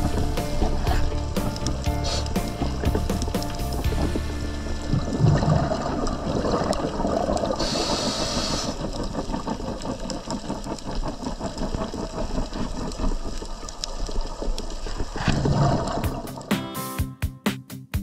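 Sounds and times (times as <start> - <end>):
regulator inhale hiss: 0.0 - 2.8, 7.5 - 8.9
exhaled bubbles rumbling underwater: 0.0 - 16.4.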